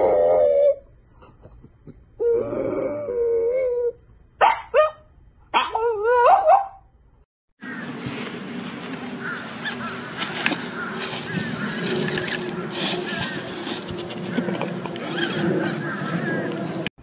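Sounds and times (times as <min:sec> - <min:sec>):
dog yipping: 0:04.4 - 0:06.8.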